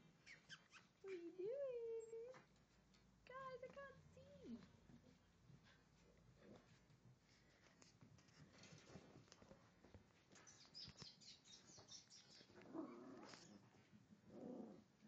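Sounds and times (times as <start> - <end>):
puppies squeaking and yipping: 0.2 - 1.0.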